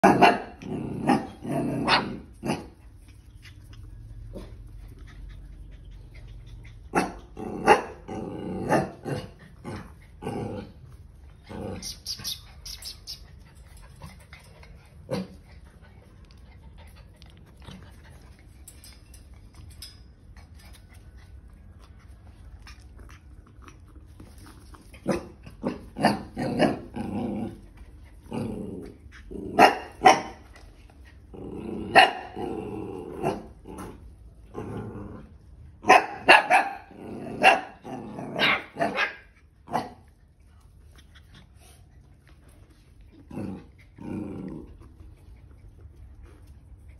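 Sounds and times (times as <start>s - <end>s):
dog growling: 7.3s - 12.0s, 22.7s - 29.6s, 31.2s - 35.5s, 43.1s - 45.3s
dog barking: 35.9s - 37.7s.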